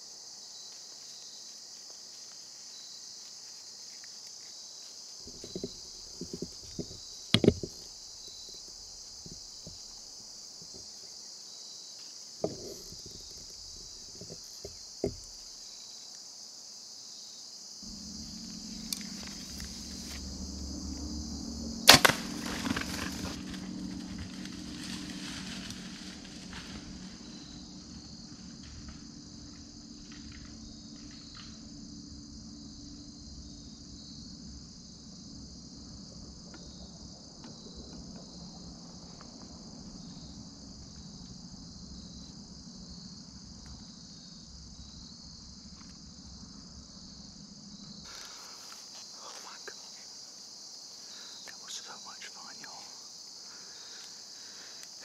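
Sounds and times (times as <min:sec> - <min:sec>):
crickets chirring: 0:00.0 - 0:55.0
faint rustling: 0:00.8 - 0:11.2, 0:12.0 - 0:15.7
bow release snap: 0:17.9 - 0:20.4, 0:21.8 - 0:23.5.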